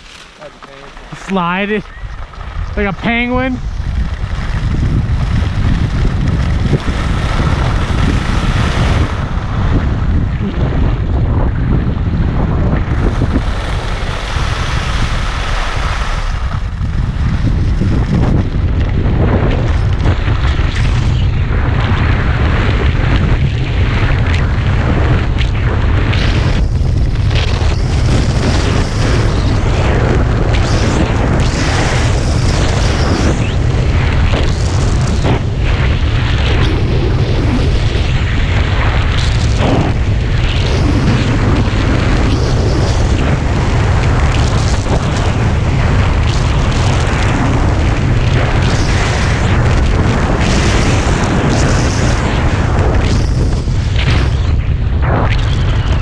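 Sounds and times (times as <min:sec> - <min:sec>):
wind buffeting microphone: 0:00.0 - 0:56.0
hiss of air and snow: 0:12.9 - 0:18.2.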